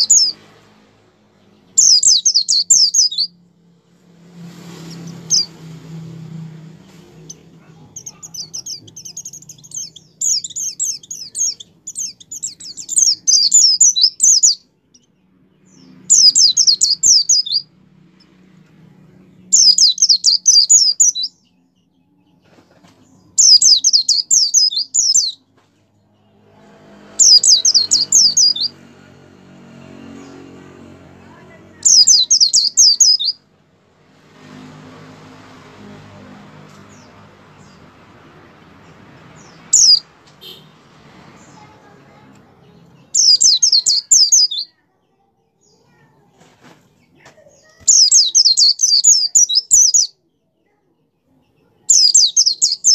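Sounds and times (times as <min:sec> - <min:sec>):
bird trilling: 0:01.8 - 0:03.4, 0:07.2 - 0:14.6, 0:15.7 - 0:17.7, 0:19.5 - 0:21.4, 0:23.3 - 0:25.4, 0:27.2 - 0:28.8, 0:31.8 - 0:33.4, 0:39.4 - 0:40.7, 0:43.1 - 0:44.7, 0:47.8 - 0:50.1, 0:51.9 - 0:52.9.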